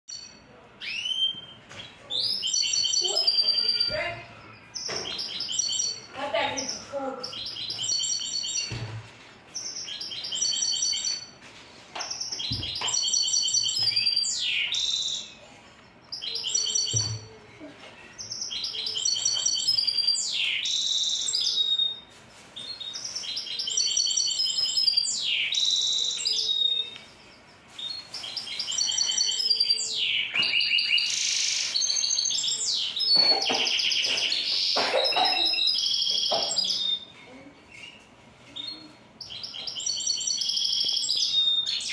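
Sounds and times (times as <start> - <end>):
finch singing trills and whistles: 0.1 - 8.8, 9.6 - 11.3, 12.1 - 15.4, 16.1 - 17.2, 18.2 - 22.0, 22.6 - 37.1, 38.6 - 41.9.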